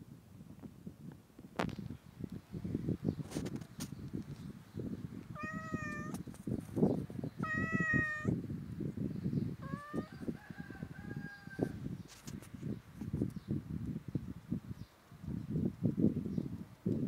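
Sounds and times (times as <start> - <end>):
cat meowing: 5.4 - 6.2, 7.4 - 8.4, 9.6 - 10.1.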